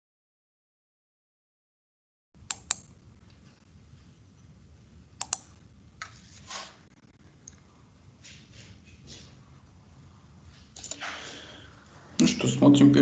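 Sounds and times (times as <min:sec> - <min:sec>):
faint hum and hiss: 0:02.4 - 0:13.0
computer mouse clicks: 0:02.5 - 0:02.9, 0:05.2 - 0:05.6, 0:10.8 - 0:11.1
soft rustle: 0:06.0 - 0:07.0, 0:07.6 - 0:11.2.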